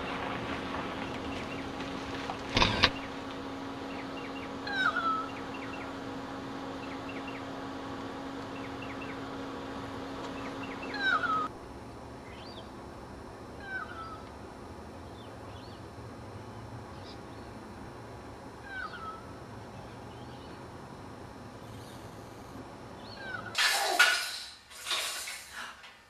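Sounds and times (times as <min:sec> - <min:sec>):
steady background hum: 0:00.0 - 0:26.0.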